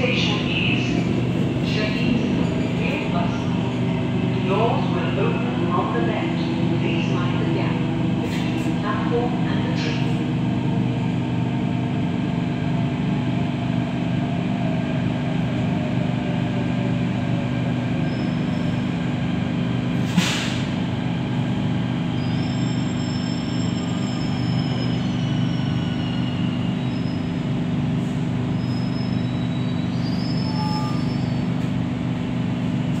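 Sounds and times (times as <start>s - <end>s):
train running hum: 0.0s - 33.0s
wheel and brake squeals: 22.1s - 27.4s, 28.6s - 31.6s.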